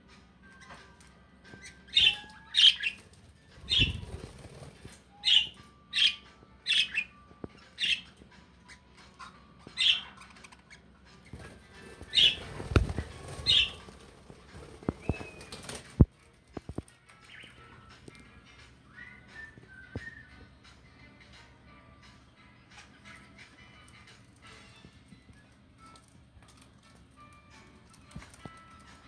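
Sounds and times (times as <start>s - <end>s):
budgerigars chirping: 1.6s - 4.4s, 5.1s - 14.0s, 17.3s - 17.7s
wing flapping: 3.6s - 4.9s, 11.4s - 16.1s.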